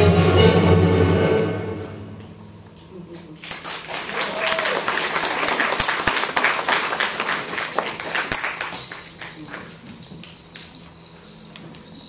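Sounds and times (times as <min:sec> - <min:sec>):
small audience clapping: 0:03.3 - 0:10.7.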